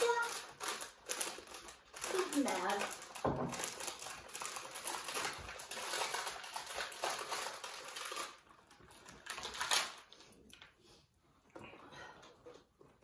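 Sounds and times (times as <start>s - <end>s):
packaging crackle: 0.0s - 10.2s
snack packaging crinkling: 0.0s - 10.7s.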